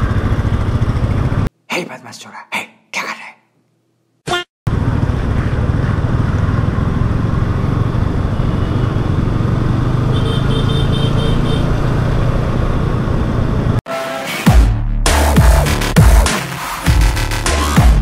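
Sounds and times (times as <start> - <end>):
motorcycle engine running: 0.0 - 1.5, 4.7 - 13.8
road and wind noise: 0.0 - 1.5, 4.7 - 13.8.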